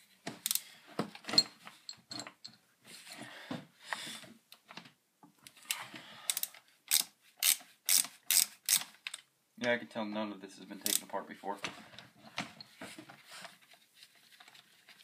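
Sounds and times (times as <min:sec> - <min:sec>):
screwdriver clicking and scraping: 0:00.3 - 0:00.7, 0:05.5 - 0:09.2, 0:10.8 - 0:11.1.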